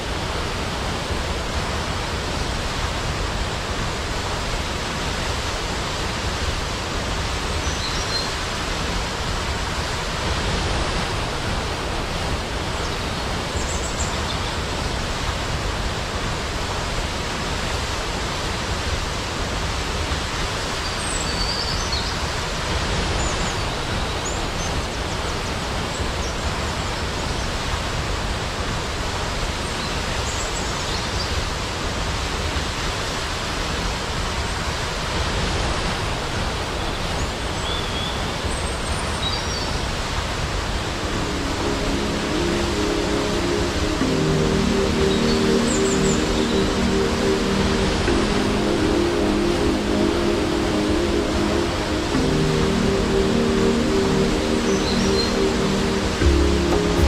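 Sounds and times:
waterfall roaring: 0:00.0 - 0:57.0.

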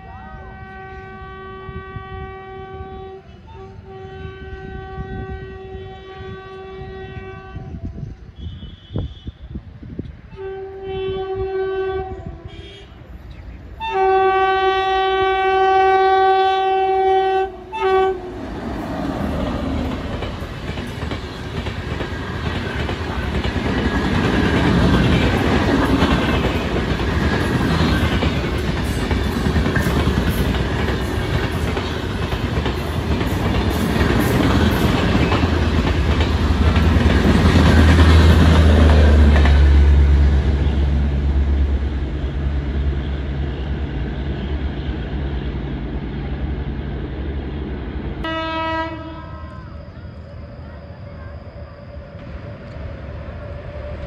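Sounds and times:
train horn blasts: 0:00.0 - 0:09.6, 0:10.3 - 0:13.2, 0:13.8 - 0:18.9, 0:48.2 - 0:49.8
train coaches rushing on rails: 0:00.0 - 0:54.0.

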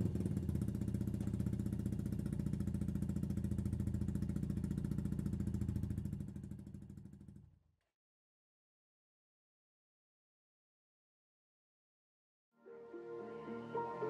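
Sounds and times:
motorcycle engine idling: 0:00.0 - 0:07.6.

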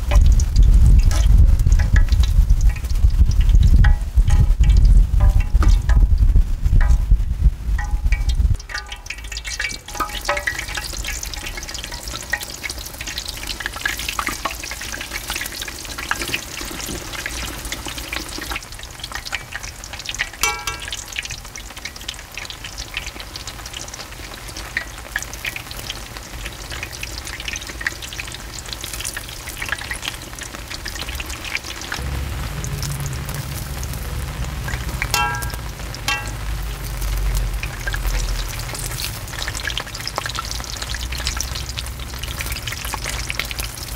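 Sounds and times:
low rumble: 0:00.0 - 0:09.4, 0:32.0 - 0:39.4
dough deep-frying in oil: 0:00.0 - 0:43.9.

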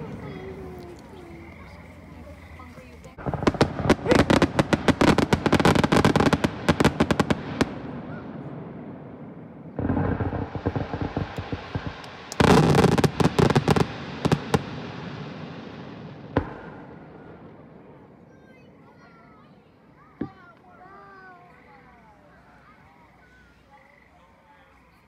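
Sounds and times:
crackling firework pops: 0:03.0 - 0:08.2, 0:09.7 - 0:17.8, 0:20.2 - 0:20.8
firework shells bursting: 0:03.1 - 0:08.0, 0:09.7 - 0:17.8.

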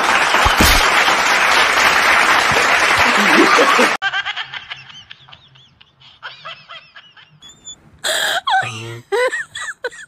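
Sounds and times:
giggling laughter: 0:03.0 - 0:10.0.

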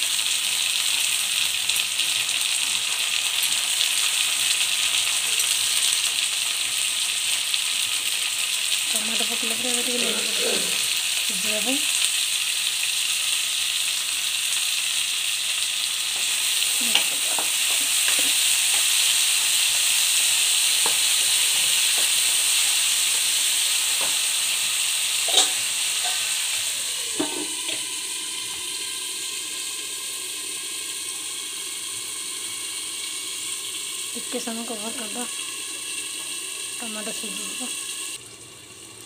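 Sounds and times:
vegetables sizzling in hot oil: 0:00.0 - 0:39.0
spatula scraping a pan: 0:25.3 - 0:26.3.

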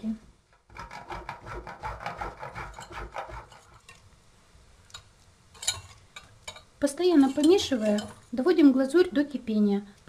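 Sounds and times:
chocolate scraping on grater: 0:00.7 - 0:03.8.

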